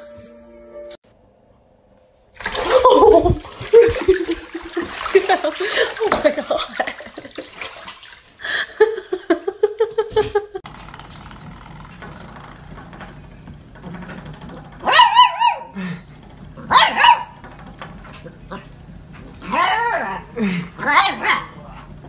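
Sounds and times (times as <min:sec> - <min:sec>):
puppy yapping barks: 0:14.8 - 0:15.7, 0:16.7 - 0:17.4, 0:20.8 - 0:21.6.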